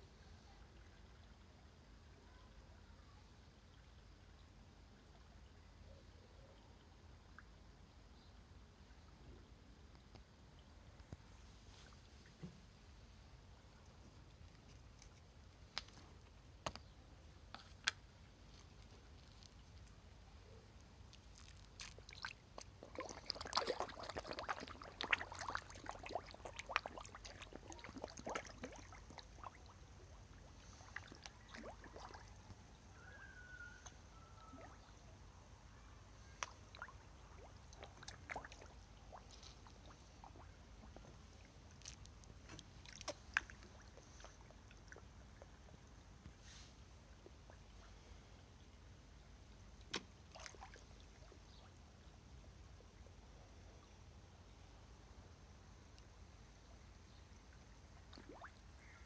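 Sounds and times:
fish slurping and splashing at surface: 0:21.4 - 0:32.5, 0:36.8 - 0:40.5.

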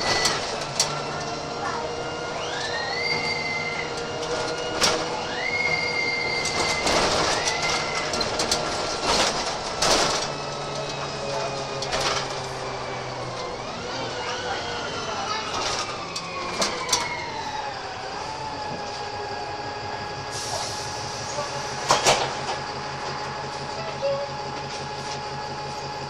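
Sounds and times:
bus drivetrain whine: 0:00.0 - 0:26.0
bus engine running: 0:00.0 - 0:26.0
knocks and rattles from bus body: 0:03.3 - 0:13.5, 0:15.4 - 0:17.4, 0:21.5 - 0:25.4.

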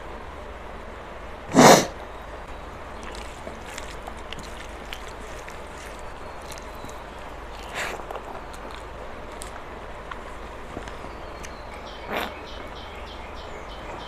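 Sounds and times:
faint chewing clicks: 0:02.5 - 0:14.0
fingers working rice: 0:02.9 - 0:12.4.

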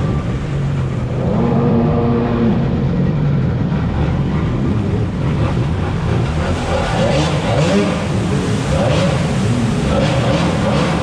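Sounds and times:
jet ski engine running: 0:00.0 - 0:11.0.

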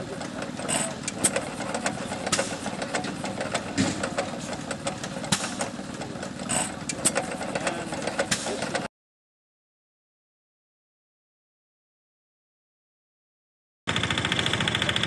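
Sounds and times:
engine pops and clicks: 0:00.0 - 0:08.9, 0:13.9 - 0:15.0
stationary engine clattering: 0:00.0 - 0:08.9, 0:13.9 - 0:15.0.

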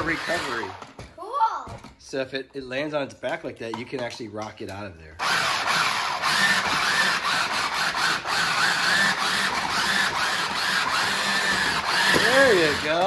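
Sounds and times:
toy truck motors whining: 0:00.0 - 0:01.0, 0:05.2 - 0:13.0
tyres scrubbing on wooden floor: 0:06.4 - 0:13.0.

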